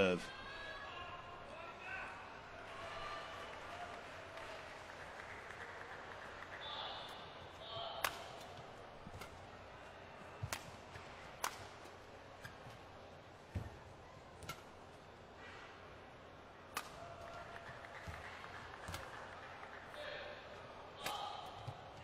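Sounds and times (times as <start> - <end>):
low hum of arena hall: 0.0 - 22.0
rackets hitting shuttlecock: 6.1 - 15.7, 16.6 - 20.0, 20.6 - 22.0.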